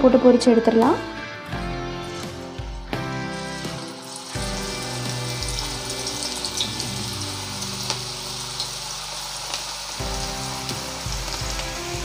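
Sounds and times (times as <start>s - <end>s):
food deep-frying in hot oil: 2.0s - 12.0s.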